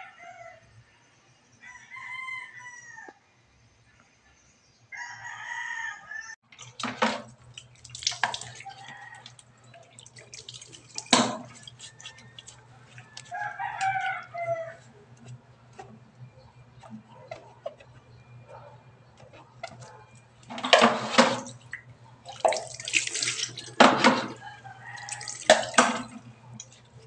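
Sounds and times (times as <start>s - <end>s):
rooster crowing: 0.0s - 3.2s, 4.9s - 6.4s, 8.5s - 9.5s, 11.6s - 15.0s, 23.8s - 26.6s
water dripping: 6.5s - 14.3s, 19.2s - 27.0s
knocks against metal sink: 23.8s - 24.4s.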